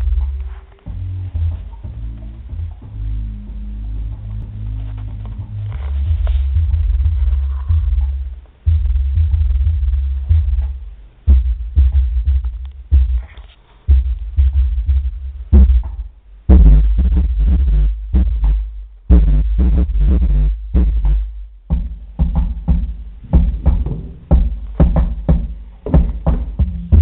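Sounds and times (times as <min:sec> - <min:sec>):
deep bass notes: 0:00.0 - 0:27.0
hip-hop instrumental: 0:00.0 - 0:27.0.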